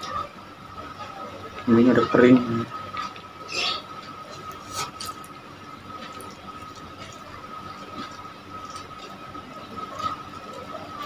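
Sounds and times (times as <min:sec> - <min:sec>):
wet chewing mouth sounds: 0:02.9 - 0:10.7.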